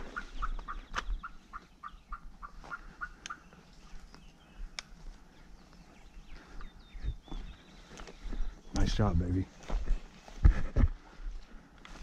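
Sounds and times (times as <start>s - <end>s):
turkey yelping: 0.0s - 3.6s
sharp clicks: 4.7s - 5.0s.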